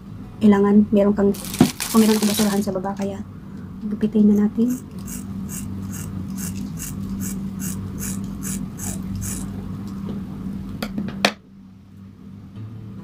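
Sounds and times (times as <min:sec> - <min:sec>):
scissors snipping hair: 0:04.7 - 0:09.5.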